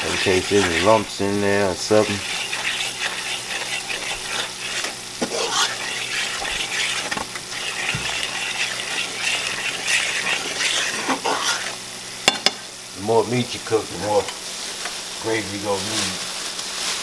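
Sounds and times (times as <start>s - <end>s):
metal fork scraping a skillet: 0.0s - 11.8s
roux sizzling in a skillet: 0.0s - 17.0s.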